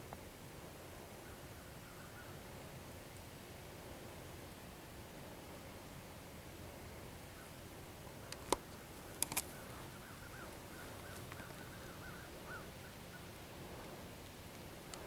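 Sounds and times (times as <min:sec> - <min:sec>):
steady hiss: 0:00.0 - 0:15.0
bird calling: 0:09.0 - 0:13.4
sharp clicks: 0:09.2 - 0:09.6.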